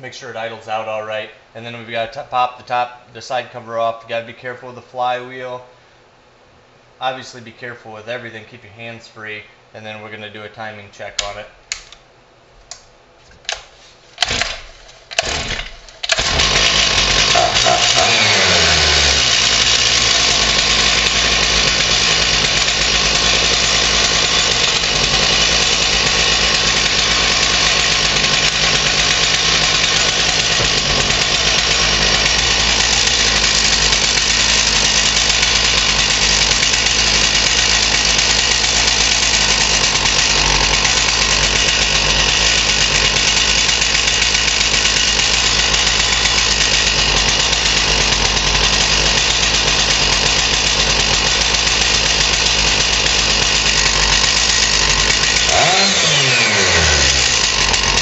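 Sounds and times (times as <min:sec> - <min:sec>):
chainsaw engine running: 0:14.2 - 0:58.0
starter rope pulls: 0:14.2 - 0:58.0.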